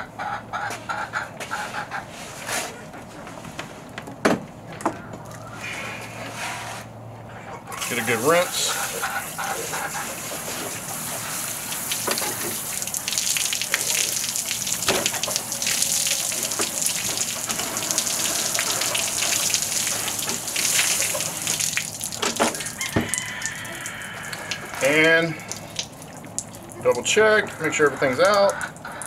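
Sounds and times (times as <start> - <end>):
running water splashing on chicken: 7.7 - 29.0.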